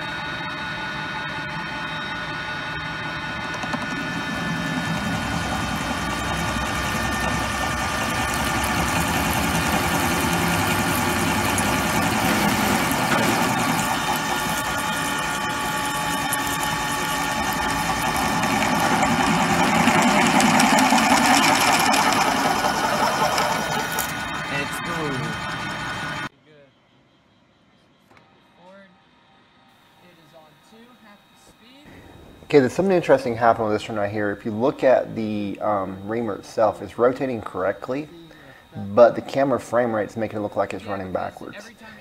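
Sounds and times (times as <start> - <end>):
motor hum: 0.0 - 26.3
drill cutting into metal: 1.0 - 26.3.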